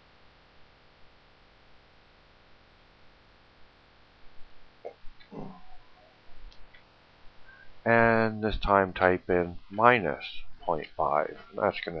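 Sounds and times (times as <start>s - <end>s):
faint microphone hiss: 0.0s - 12.0s
low mouth noises: 4.8s - 5.9s.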